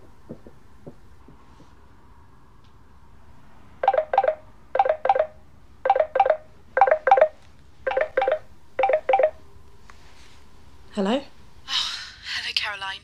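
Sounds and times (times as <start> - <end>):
telephone ringing: 3.8 - 9.4.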